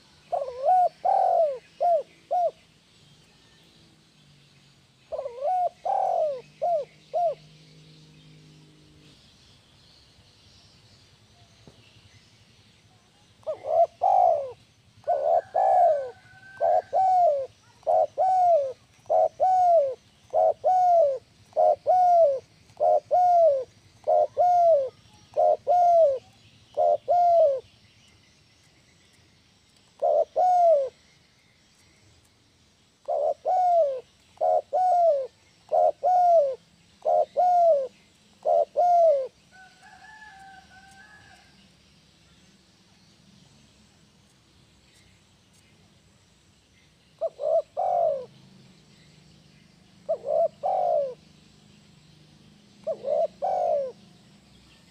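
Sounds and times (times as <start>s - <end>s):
dove cooing: 0.0s - 2.6s, 5.1s - 7.5s, 13.4s - 27.7s, 30.0s - 31.0s, 33.0s - 41.5s, 47.2s - 48.4s, 50.0s - 51.3s, 52.8s - 54.3s.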